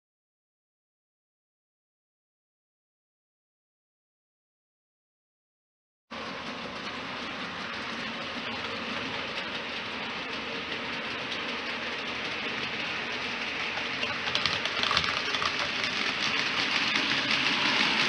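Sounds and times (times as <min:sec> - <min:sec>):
model train running on track: 0:06.1 - 0:18.0.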